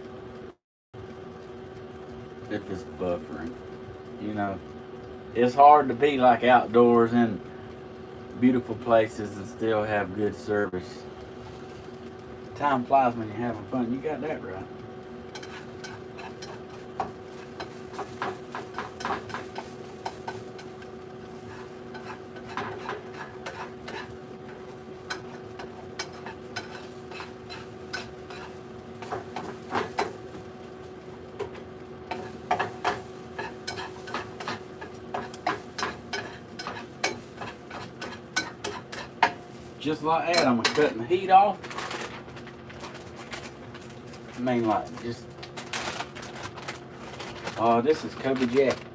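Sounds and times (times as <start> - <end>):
spatula scraping and tapping frying pan: 15.3 - 30.4, 31.4 - 39.5, 40.2 - 41.0.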